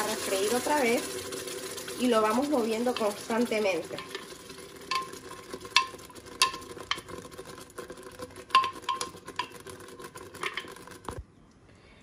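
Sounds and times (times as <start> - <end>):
utensils clinking on metal pot: 0.0 - 7.2, 8.4 - 9.7, 10.4 - 10.7
sauce sizzling in a pot: 0.0 - 11.0.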